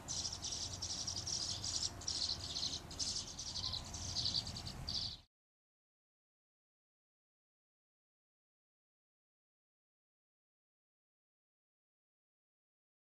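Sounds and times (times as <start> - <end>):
nestling birds chattering: 0.0 - 5.3.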